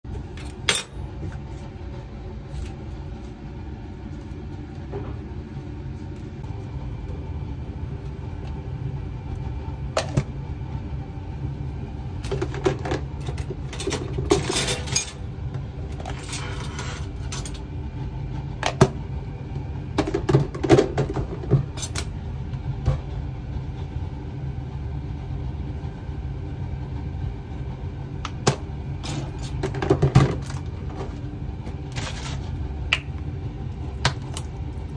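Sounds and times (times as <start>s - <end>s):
steady low hum: 0.0s - 34.9s
utensils and dishes clinking: 0.4s - 1.0s, 12.3s - 15.2s, 29.0s - 30.6s.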